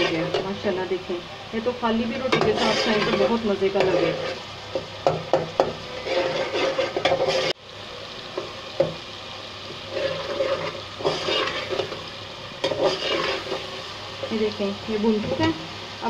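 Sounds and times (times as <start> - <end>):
food sizzling in a pot: 0.0 - 16.0
spoon scraping a pot: 2.2 - 4.5, 5.6 - 7.6, 9.9 - 12.0, 12.6 - 13.7.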